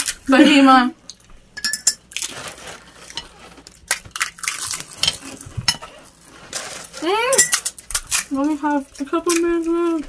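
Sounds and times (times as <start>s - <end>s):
spoons clinking on plates and bowls: 1.6s - 2.0s, 7.3s - 7.7s
crisp shells cracking: 2.0s - 5.4s, 6.5s - 10.0s.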